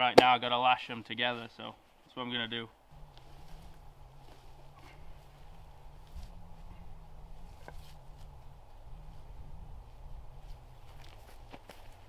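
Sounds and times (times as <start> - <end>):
faint low rumble: 2.9 - 12.0.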